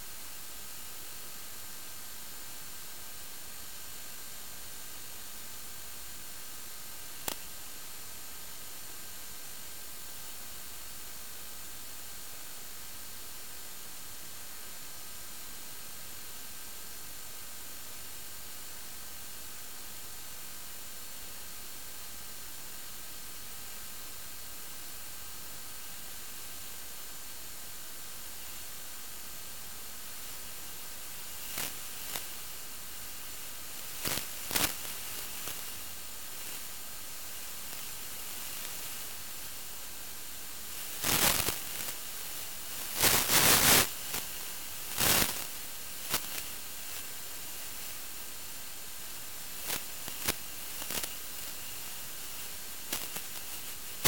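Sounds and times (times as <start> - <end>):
static hiss: 0.0 - 54.0
crackling interference bursts: 7.2 - 7.5, 30.0 - 54.0.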